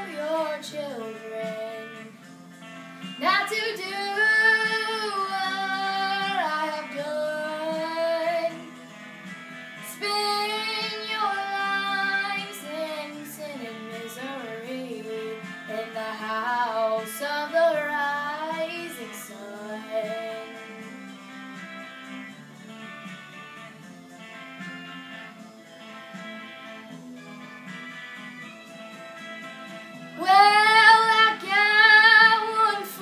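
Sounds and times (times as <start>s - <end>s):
girl singing: 0.0s - 2.0s, 3.2s - 8.6s, 9.8s - 20.6s, 30.2s - 33.0s
faint guitar accompaniment: 0.0s - 33.0s.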